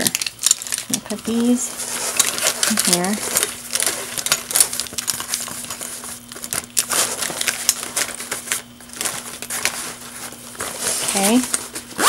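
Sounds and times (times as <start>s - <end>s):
fabric rustling and scraping: 7.9s - 12.0s.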